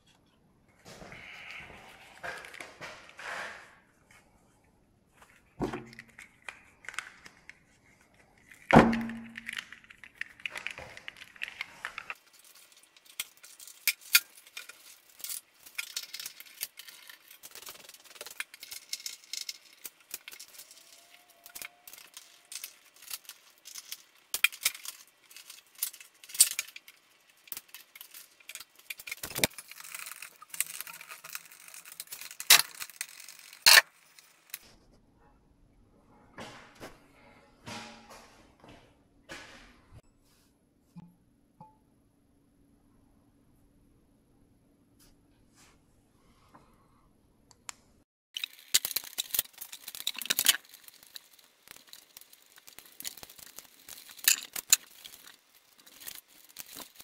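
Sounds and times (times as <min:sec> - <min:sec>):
metal tools clinking and clanking: 0:53.9 - 0:56.9.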